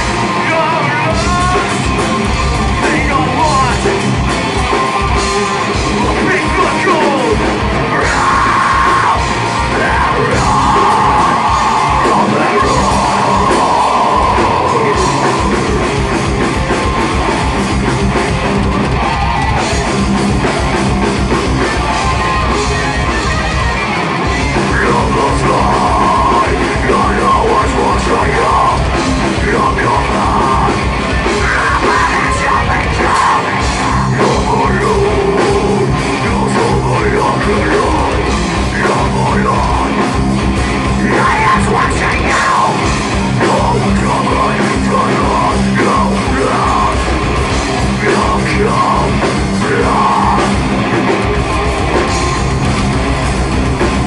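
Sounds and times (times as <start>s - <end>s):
heavy metal band playing: 0.0s - 54.0s.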